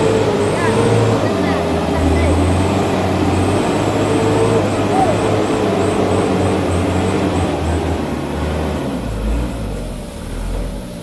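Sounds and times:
diesel truck engine running: 0:00.0 - 0:11.0.

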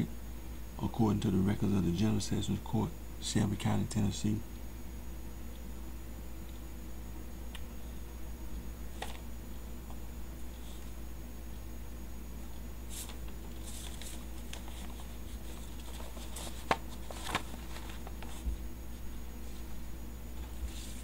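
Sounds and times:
paper rustling and shuffling: 0:08.9 - 0:09.2, 0:12.9 - 0:19.8, 0:20.4 - 0:21.0.

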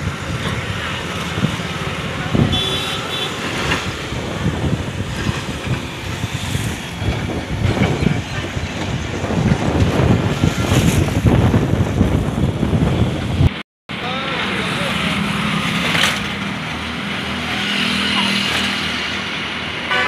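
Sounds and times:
wind buffeting microphone: 0:00.0 - 0:13.6.

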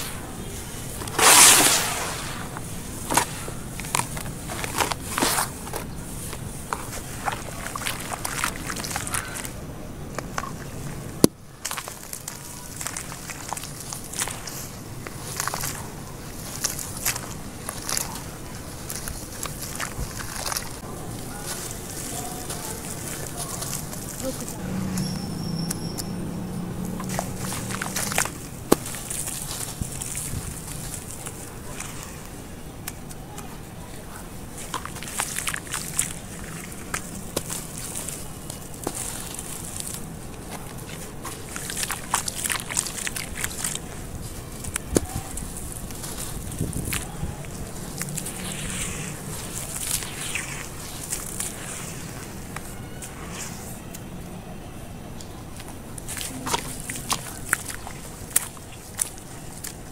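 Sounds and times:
hands crunching wet cement paste: 0:00.0 - 0:54.2, 0:55.0 - 0:59.9
gritty crackles: 0:00.0 - 0:54.4, 0:55.1 - 0:59.9
steady low rumble: 0:12.9 - 0:31.7, 0:34.0 - 0:59.8.

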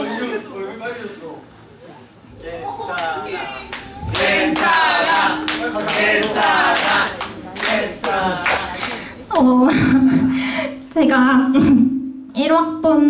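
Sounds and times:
crowd calling out and cheering: 0:02.3 - 0:09.3
crowd clapping: 0:02.9 - 0:09.2.

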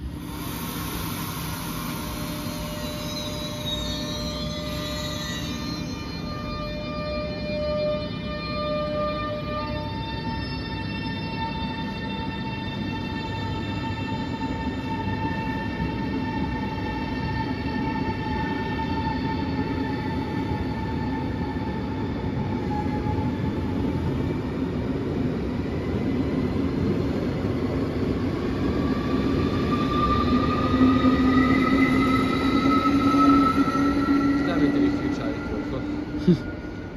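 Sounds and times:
rising whine: 0:00.0 - 0:18.3, 0:27.5 - 0:36.9
electric train whine: 0:00.0 - 0:36.9
rumble of train wheels: 0:00.0 - 0:36.9.

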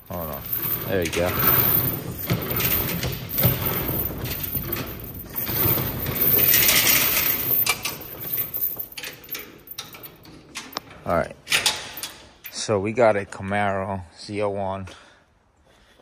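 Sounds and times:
hand chain clinking and rattling: 0:00.0 - 0:10.9
metal garage door rolling up: 0:00.0 - 0:12.3.

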